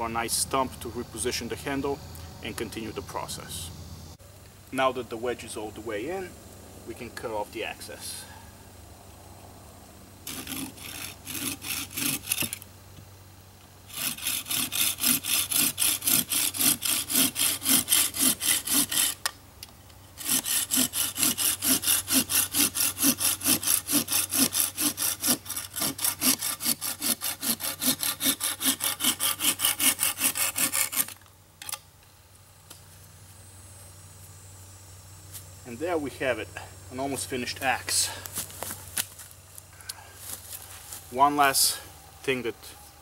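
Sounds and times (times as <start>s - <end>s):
hand saw cutting wood: 10.2s - 12.6s, 13.9s - 19.3s, 20.2s - 31.2s.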